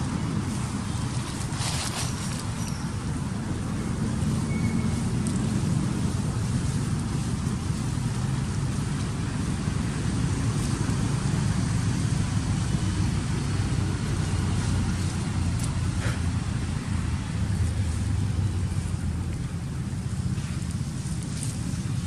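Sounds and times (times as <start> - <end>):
vehicle engine rumbling: 0.0 - 22.0.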